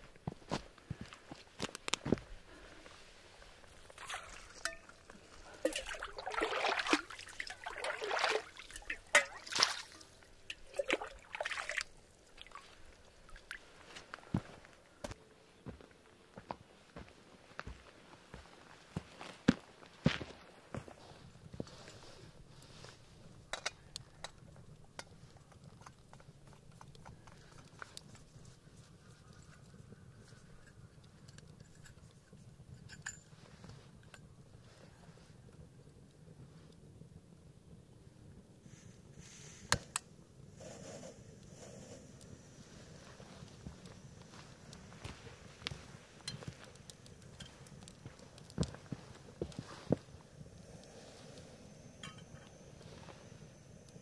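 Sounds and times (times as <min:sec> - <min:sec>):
metal cup scooping water: 0:03.7 - 0:12.7.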